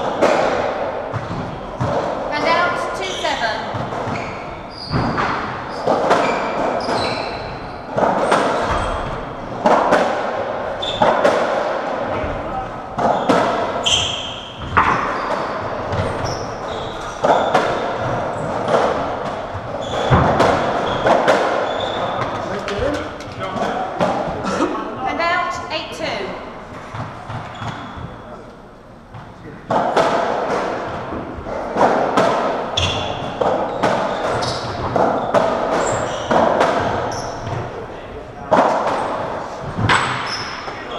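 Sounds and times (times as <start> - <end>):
ball hit by racquets: 0.0 - 2.4, 3.1 - 24.6, 29.1 - 37.8, 38.4 - 40.9
shoes squeaking on wooden floor: 1.1 - 9.8, 10.7 - 11.4, 13.0 - 25.3, 26.0 - 28.4, 32.7 - 37.7, 38.9 - 40.9
ball smacking off walls: 17.2 - 24.4.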